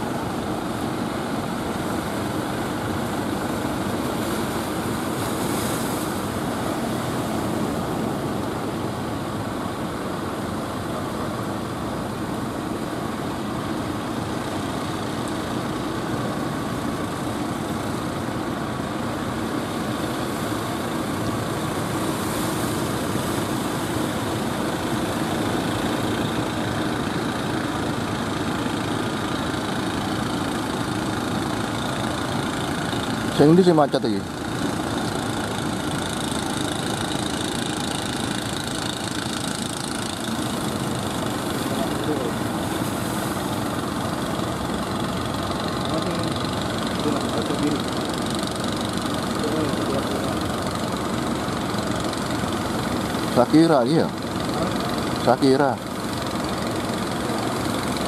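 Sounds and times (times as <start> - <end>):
boat engines running: 0.0 - 58.0
waves breaking against hulls: 2.5 - 8.4, 34.3 - 58.0.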